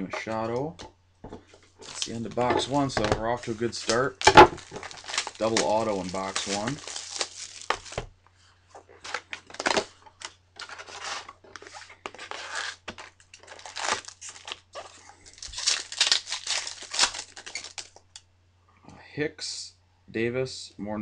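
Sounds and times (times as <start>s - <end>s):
foil packs crinkling: 1.7s - 8.1s, 9.0s - 18.0s
foil pack tearing: 1.8s - 8.0s, 9.0s - 18.0s.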